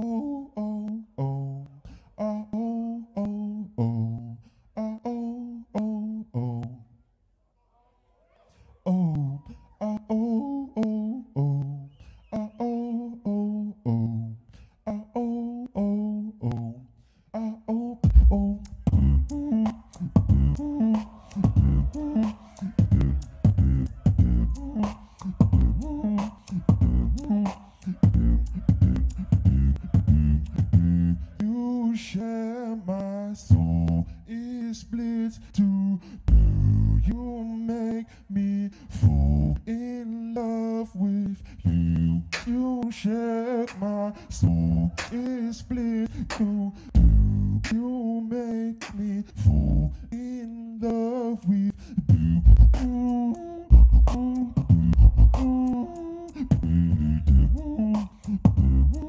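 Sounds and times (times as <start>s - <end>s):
wavering sung vocal melody: 0.0s - 7.0s, 8.7s - 59.0s
beatboxing clicking snares and hi-hats: 18.0s - 31.5s, 33.5s - 34.1s, 41.3s - 43.0s, 43.6s - 47.9s, 48.8s - 49.7s, 51.7s - 59.0s
beatboxing kick-drum hits: 18.0s - 31.6s, 36.3s - 37.2s, 41.6s - 43.0s, 43.6s - 45.4s, 46.0s - 47.9s, 48.8s - 49.8s, 51.8s - 59.0s
hummed bass tone: 18.1s - 20.8s, 21.4s - 22.1s, 22.8s - 24.7s, 28.0s - 31.2s, 52.1s - 52.8s, 53.7s - 55.5s, 56.5s - 57.7s, 58.5s - 59.0s.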